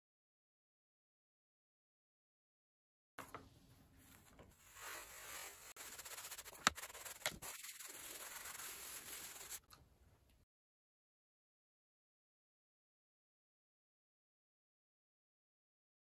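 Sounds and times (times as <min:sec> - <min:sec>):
iron rubbing on paper bag: 0:04.5 - 0:09.6.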